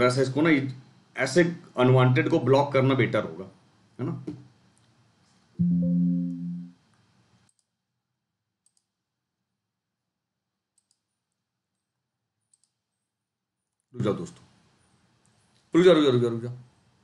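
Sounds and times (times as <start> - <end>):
computer alert chime: 5.6 - 6.7
computer mouse clicks: 7.4 - 7.8, 8.6 - 9.0, 10.7 - 11.9, 12.5 - 13.1.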